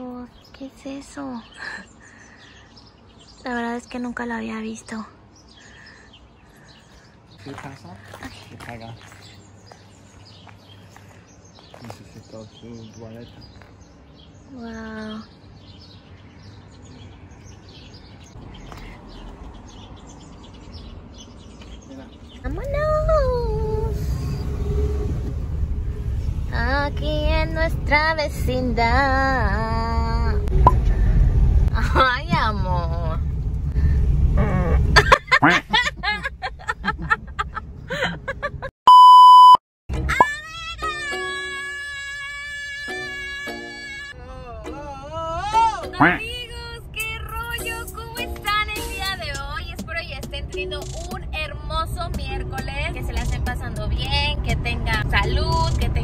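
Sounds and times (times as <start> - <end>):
small birds chirping: 0.0 - 24.9
low outdoor rumble: 0.0 - 38.7, 44.1 - 56.0
high test-tone beep: 38.9 - 39.6.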